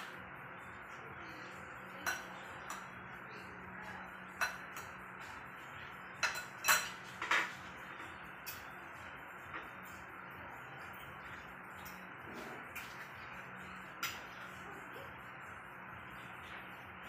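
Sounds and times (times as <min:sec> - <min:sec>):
cutlery clinking on dishes: 0:01.9 - 0:03.0, 0:04.3 - 0:05.4, 0:06.1 - 0:08.7, 0:11.8 - 0:13.2, 0:13.9 - 0:14.6.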